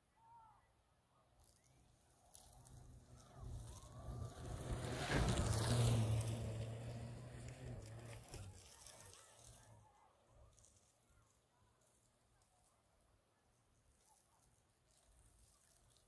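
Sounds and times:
track hissing on snow: 2.5 - 9.6.

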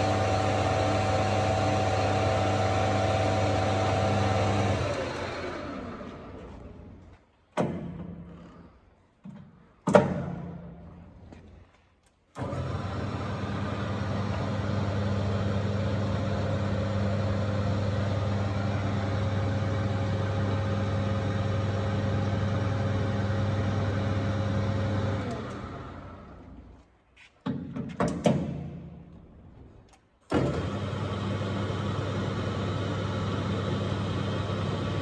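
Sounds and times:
metal lathe motor humming: 0.0 - 6.8, 12.4 - 26.4.

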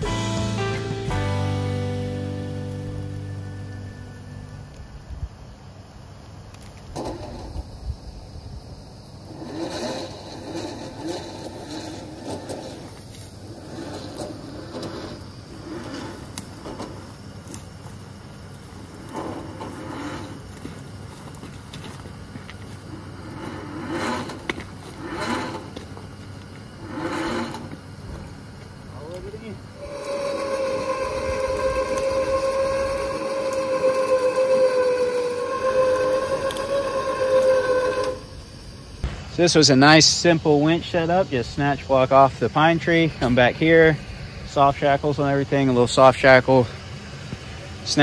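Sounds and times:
electric winch running: 0.0 - 4.8, 9.2 - 39.0
winch motor whining under load: 23.2 - 28.3, 29.6 - 38.6.

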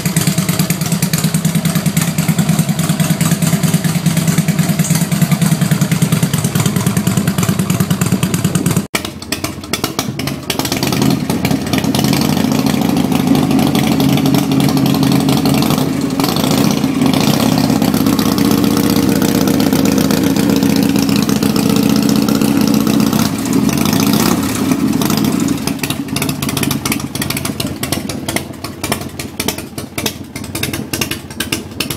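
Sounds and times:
motorcycle engine idling: 0.0 - 31.9.

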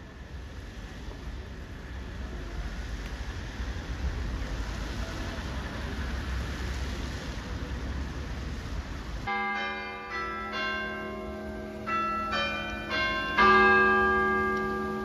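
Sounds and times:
clock tower bells chiming: 9.3 - 15.0.

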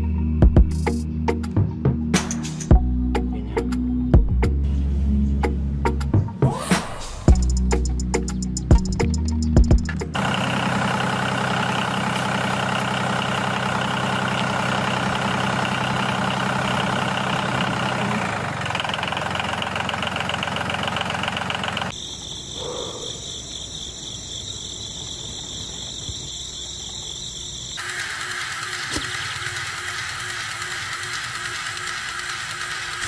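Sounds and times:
toy tractor motor running: 10.2 - 22.0, 27.7 - 33.0.

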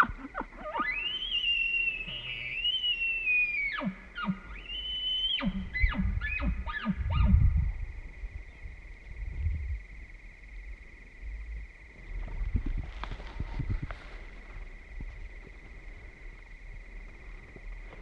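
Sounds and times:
elk bugling: 0.0 - 7.6
faint high-pitched hum: 0.0 - 18.0.

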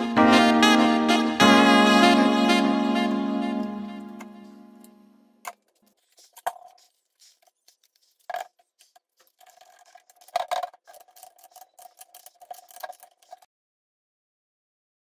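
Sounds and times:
workshop clicks and scrapes: 5.5 - 13.5.

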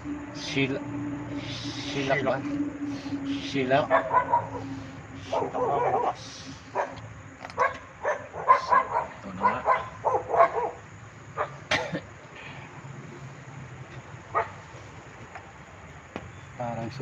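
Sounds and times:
dog barking: 3.9 - 7.0, 7.6 - 10.8, 11.4 - 11.6, 14.3 - 14.6.

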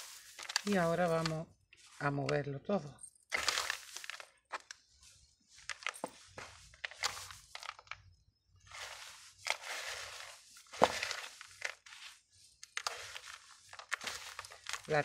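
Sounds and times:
hands crunching gritty soil mix: 0.0 - 2.5, 3.3 - 4.8, 8.7 - 15.0.

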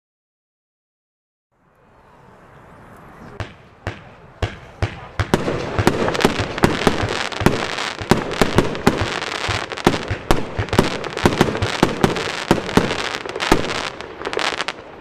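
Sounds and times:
fireworks bangs: 3.1 - 15.0.

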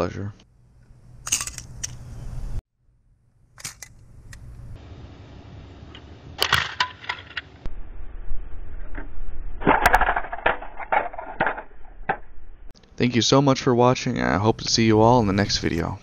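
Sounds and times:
grenade cracks and clatter: 9.6 - 12.2.

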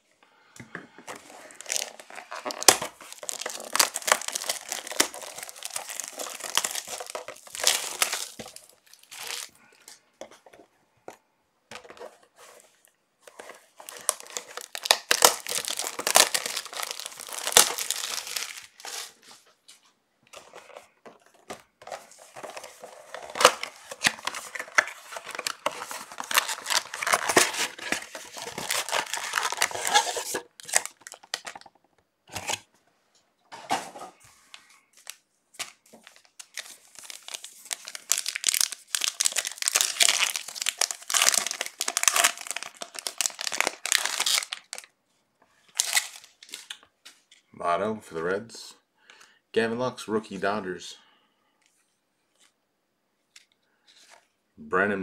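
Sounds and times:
wrapper tearing and crinkling: 1.2 - 9.5, 13.7 - 19.2, 21.9 - 31.7, 35.0 - 44.9, 45.7 - 46.8.

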